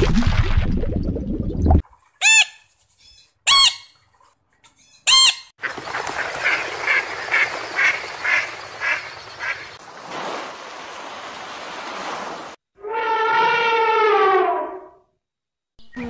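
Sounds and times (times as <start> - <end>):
water bubbling: 0.0 - 2.0
macaw squawks: 2.2 - 4.0, 4.8 - 5.5
ducks quacking: 5.1 - 9.8
steady watery hiss: 6.8 - 12.5.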